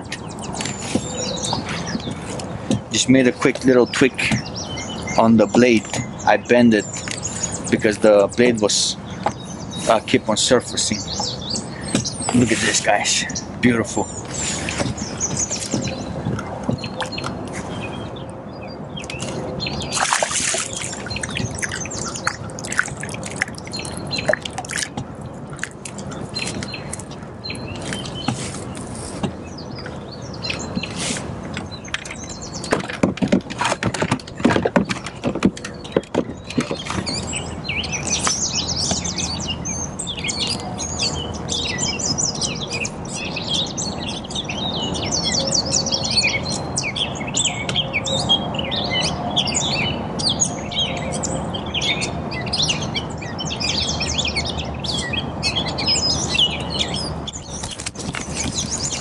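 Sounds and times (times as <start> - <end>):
birds singing and chirping: 0.0 - 59.0
sharp clicks and knocks: 31.5 - 37.3.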